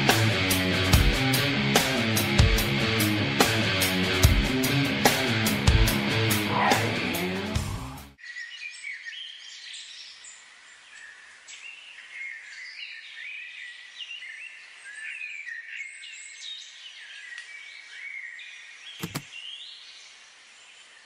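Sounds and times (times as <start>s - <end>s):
birds chirping: 6.2s - 7.5s.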